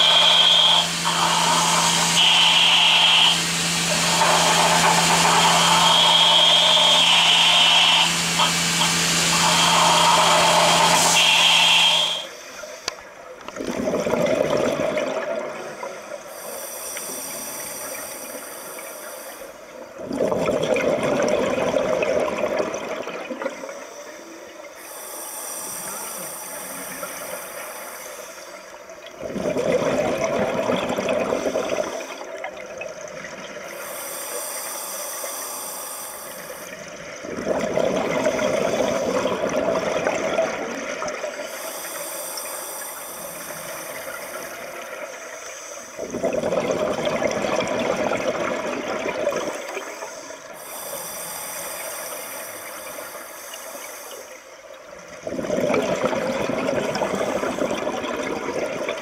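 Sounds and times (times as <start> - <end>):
exhaled air bubbling underwater: 13.1 - 59.0.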